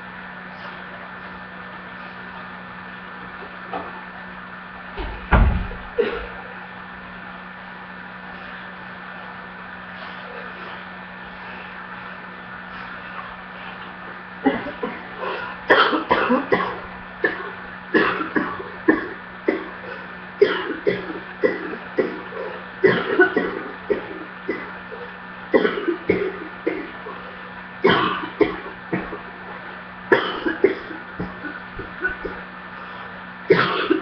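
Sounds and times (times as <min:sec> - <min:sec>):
steady low hum: 0:00.0 - 0:34.0
person coughing: 0:06.0 - 0:06.4, 0:14.4 - 0:24.8, 0:25.6 - 0:27.1, 0:27.8 - 0:29.2, 0:30.1 - 0:32.4, 0:33.5 - 0:34.0.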